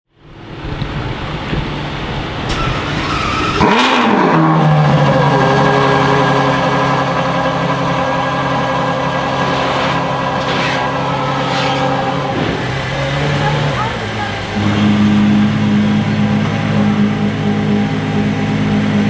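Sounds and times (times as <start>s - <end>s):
car engine starting and idling: 0.1s - 19.0s.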